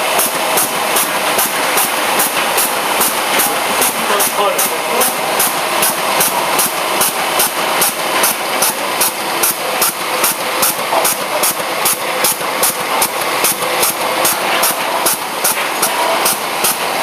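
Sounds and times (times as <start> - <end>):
labelling machine whirring: 0.0 - 17.0.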